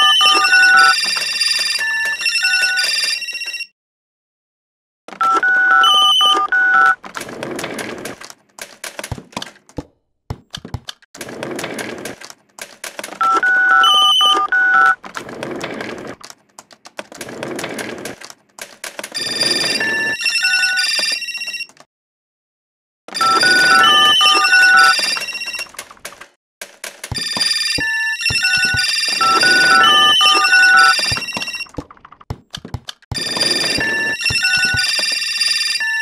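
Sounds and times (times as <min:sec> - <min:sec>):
electronic telephone ringing: 0:00.0 - 0:03.7, 0:05.2 - 0:07.0, 0:13.2 - 0:15.0, 0:19.2 - 0:21.8, 0:23.1 - 0:25.8, 0:27.1 - 0:31.8, 0:33.1 - 0:36.0
clicks: 0:06.3 - 0:13.4, 0:25.0 - 0:35.4.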